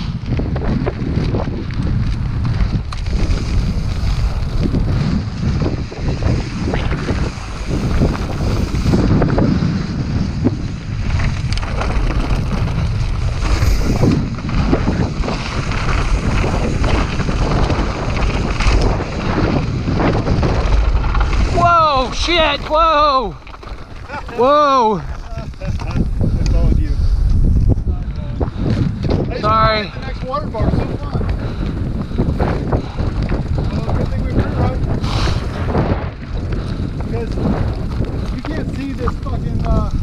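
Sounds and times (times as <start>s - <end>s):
bike tyres and frame rattling: 0.0s - 40.0s
wind buffeting microphone: 0.0s - 40.0s.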